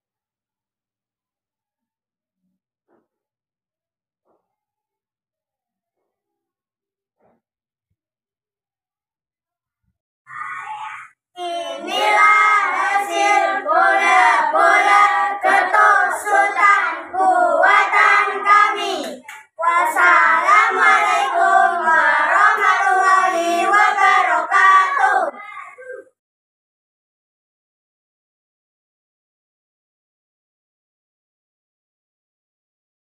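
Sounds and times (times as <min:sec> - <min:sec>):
children singing together: 0:11.4 - 0:25.4.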